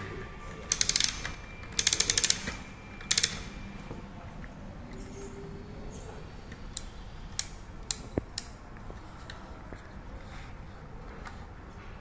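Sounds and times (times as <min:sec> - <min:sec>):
wooden mechanism ratcheting clicks: 0:00.7 - 0:03.5.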